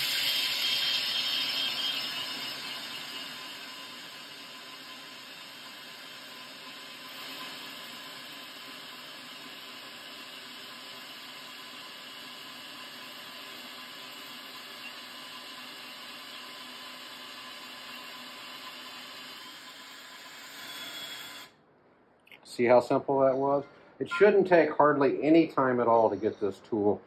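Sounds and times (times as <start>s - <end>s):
electric drill boring metal: 0.0s - 21.6s.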